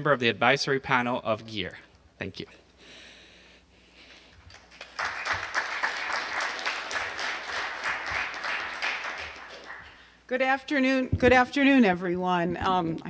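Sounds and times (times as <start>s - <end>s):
audience applause: 4.5s - 10.2s.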